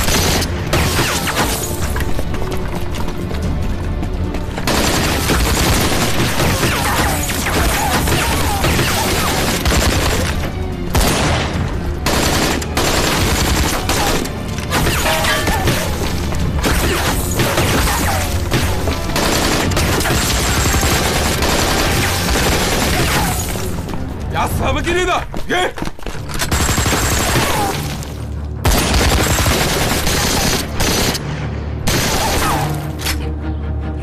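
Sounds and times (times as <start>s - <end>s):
rifle and machine-gun fire: 0.0s - 1.6s, 4.6s - 16.0s, 16.6s - 23.4s, 26.5s - 27.8s, 28.6s - 31.2s, 31.8s - 32.7s
dramatic film music: 0.0s - 34.0s.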